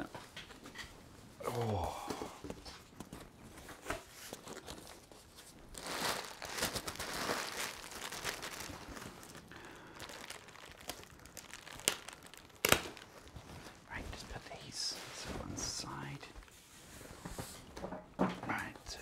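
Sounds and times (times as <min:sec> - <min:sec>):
paper and plastic wrap crinkling: 0:01.6 - 0:17.9.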